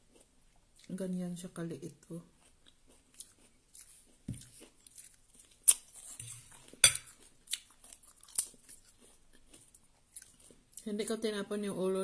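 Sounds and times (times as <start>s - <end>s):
cutlery clinking on a ceramic bowl: 6.2s - 7.2s.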